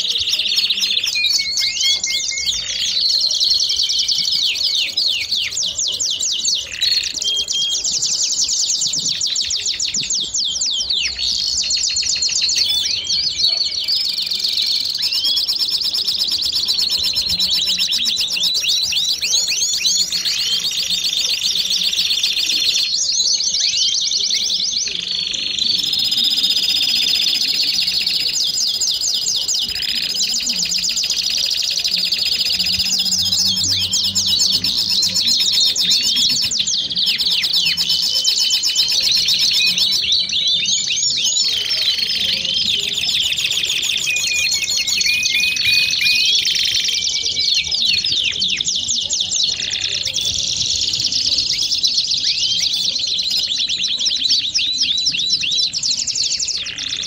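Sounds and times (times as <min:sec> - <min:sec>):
canary singing trills and whistles: 0:00.0 - 0:57.0.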